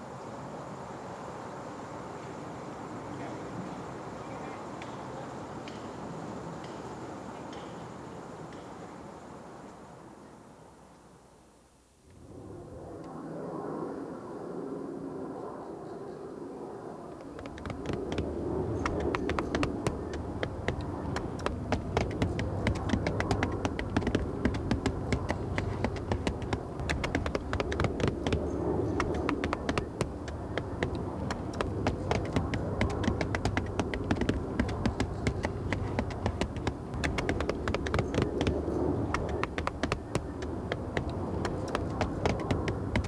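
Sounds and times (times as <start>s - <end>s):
low steady hum: 17.2s - 43.0s
hammers tapping on bark roofing: 17.4s - 43.0s.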